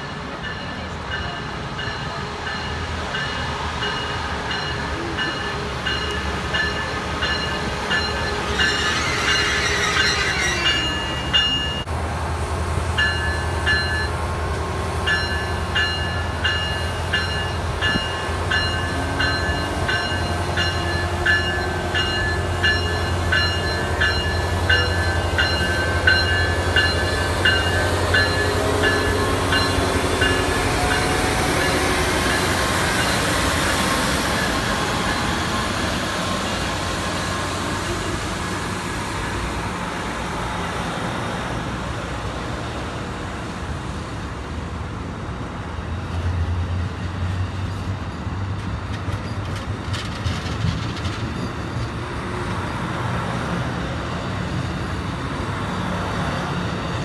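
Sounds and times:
locomotive bell ringing: 0:00.0 - 0:11.9, 0:13.0 - 0:14.4, 0:15.0 - 0:36.0
locomotive engine running: 0:00.0 - 0:40.2.

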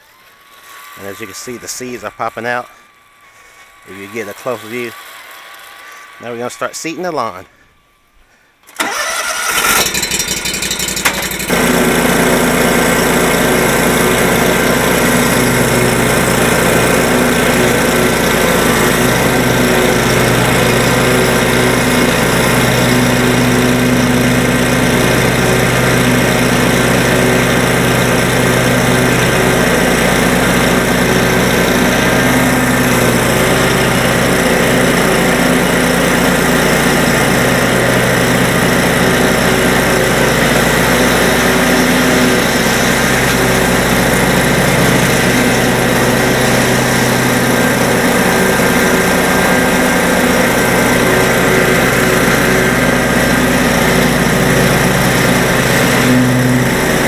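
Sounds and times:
lawn mower engine running: 0:00.0 - 0:07.3, 0:08.6 - 0:57.0.

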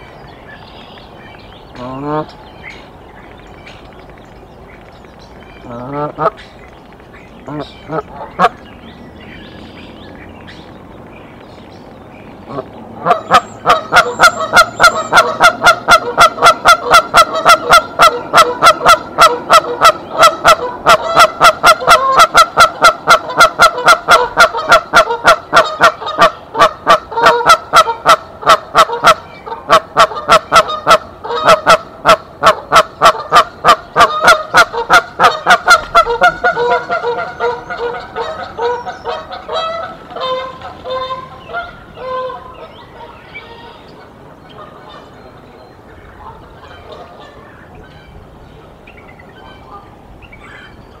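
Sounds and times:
goose honking: 0:12.4 - 0:45.2.

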